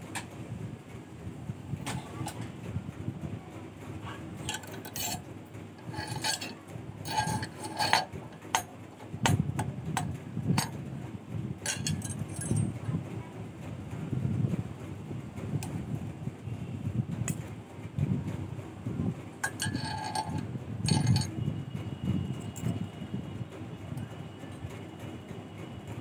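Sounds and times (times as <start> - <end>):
steel wire clicking on rod: 4.4 - 10.8, 11.6 - 12.7, 19.4 - 21.4.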